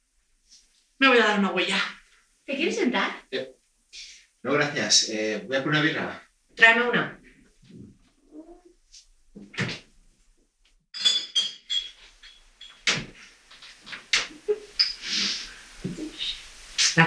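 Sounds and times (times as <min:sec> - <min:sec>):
glass bottles clinking: 0:11.0 - 0:13.0, 0:14.8 - 0:15.0
short hiss: 0:13.1 - 0:17.0.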